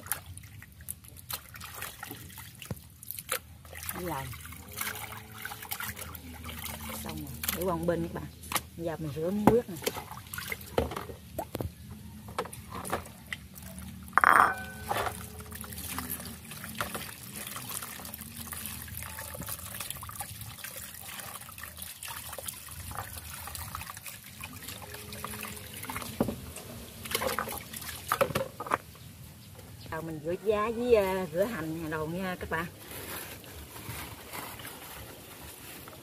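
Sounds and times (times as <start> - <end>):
water sloshing and trickling: 0.0 - 36.0.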